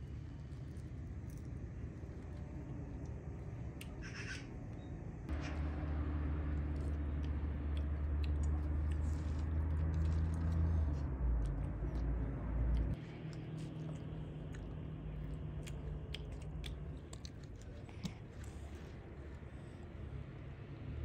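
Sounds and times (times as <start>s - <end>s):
chewing and crunching sweets: 0.0s - 21.0s
steady low hum: 0.0s - 21.0s.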